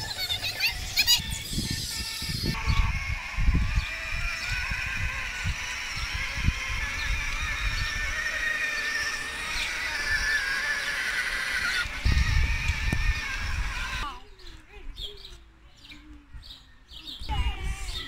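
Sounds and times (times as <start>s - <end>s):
electric motor whine: 0.0s - 14.2s.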